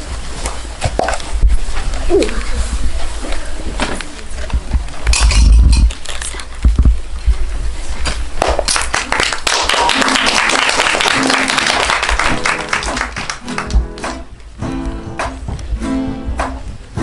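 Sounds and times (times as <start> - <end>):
hand clapping: 8.4 - 14.4, 15.2 - 15.4, 16.4 - 16.6
acoustic guitar strumming: 11.2 - 17.0.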